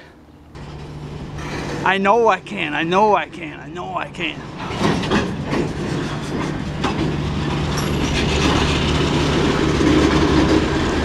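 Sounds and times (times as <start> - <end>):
rumble of train wheels on rails: 0.0 - 11.0
wheels clicking over track: 4.3 - 11.0.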